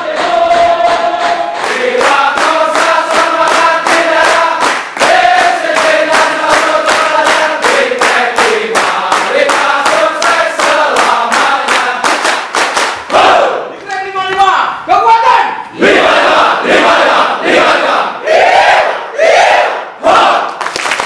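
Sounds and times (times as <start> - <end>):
men singing together: 0.0 - 12.2
rhythmic hand-clapping: 0.0 - 14.4, 20.1 - 21.0.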